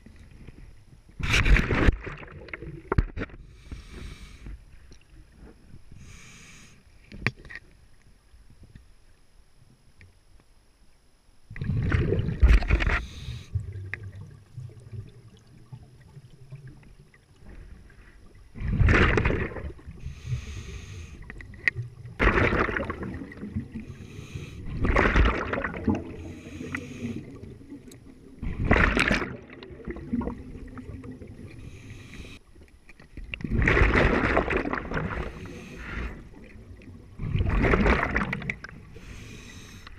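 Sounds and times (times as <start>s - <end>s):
faint hissing inhales: 3.4s - 4.9s, 5.9s - 7.1s, 12.9s - 13.6s, 20.0s - 21.4s, 23.7s - 24.8s, 26.1s - 27.5s, 31.5s - 32.6s, 35.2s - 36.5s, 38.9s - 39.9s
rushing bubble bursts: 11.6s - 12.7s, 22.2s - 23.7s.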